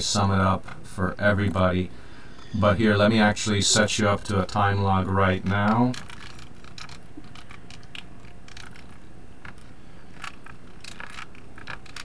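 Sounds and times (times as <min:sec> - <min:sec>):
low background hum: 0:00.0 - 0:12.0
keyboard typing: 0:05.4 - 0:12.0.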